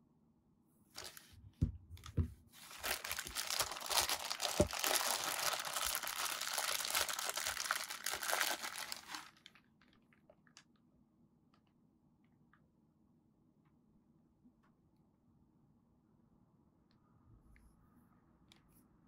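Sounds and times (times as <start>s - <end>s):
plastic bag crinkling: 1.0s - 1.3s, 2.6s - 10.6s.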